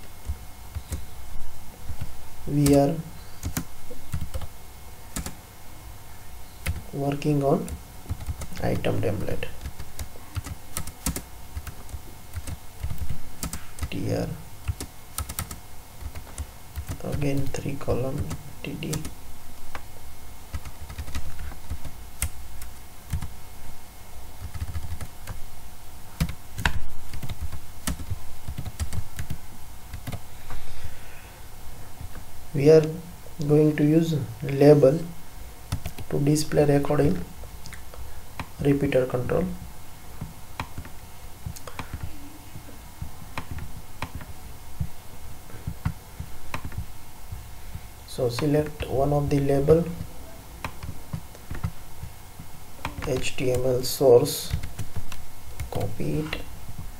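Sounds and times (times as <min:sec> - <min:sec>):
computer keyboard typing: 0:03.4 - 0:04.5, 0:05.2 - 0:05.4, 0:06.6 - 0:06.9, 0:07.6 - 0:08.8, 0:09.5 - 0:14.0, 0:14.6 - 0:19.2, 0:20.5 - 0:23.3, 0:24.4 - 0:25.4, 0:26.2 - 0:30.2, 0:35.7 - 0:36.1, 0:40.2 - 0:42.2, 0:43.2 - 0:44.4, 0:45.6 - 0:46.9, 0:48.4 - 0:52.1, 0:52.8 - 0:53.7, 0:54.4 - 0:56.2
computer mouse clicking: 0:40.2 - 0:42.1, 0:43.3 - 0:44.3, 0:45.6 - 0:46.9, 0:50.6 - 0:51.8.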